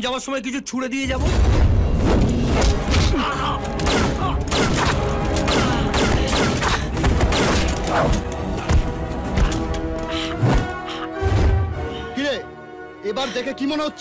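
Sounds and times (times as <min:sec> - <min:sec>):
loud action music: 0:01.1 - 0:12.3.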